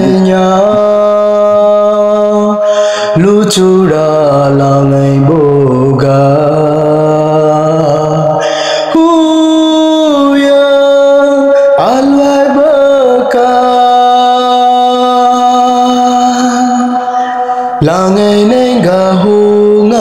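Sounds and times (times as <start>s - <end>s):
solo voice chanting: 0.0s - 20.0s.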